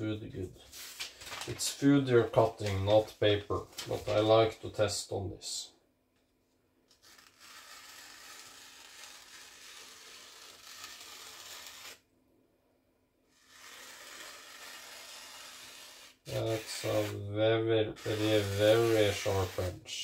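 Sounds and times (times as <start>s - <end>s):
cleaver slicing paper: 6.9s - 12.0s, 13.3s - 17.2s, 18.0s - 19.8s.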